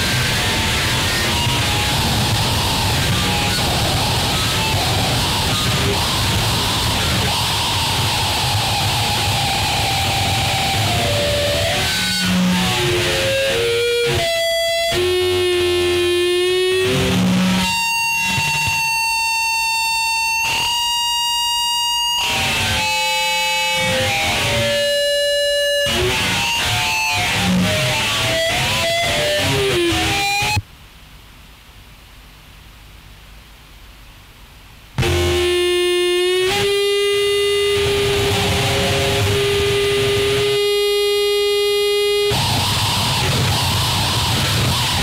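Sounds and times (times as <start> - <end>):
harsh noise music: 0.0 - 30.6, 35.0 - 45.0.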